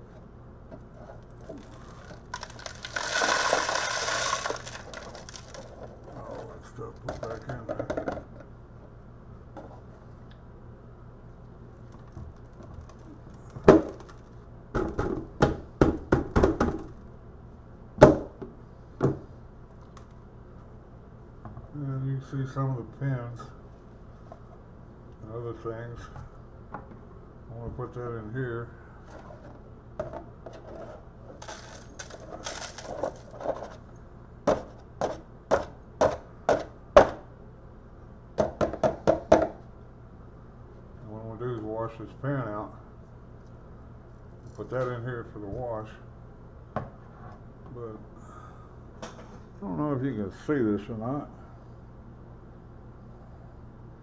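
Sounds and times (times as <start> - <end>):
metal scraps rattling through funnel: 1.4 - 7.8, 31.3 - 33.8.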